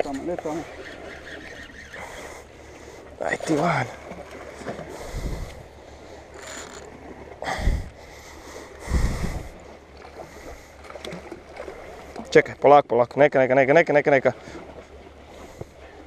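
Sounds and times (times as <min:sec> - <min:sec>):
sea waves washing: 0:00.0 - 0:12.6, 0:13.6 - 0:16.0
wind buffeting microphone: 0:04.9 - 0:05.8, 0:07.4 - 0:08.0, 0:08.8 - 0:09.6.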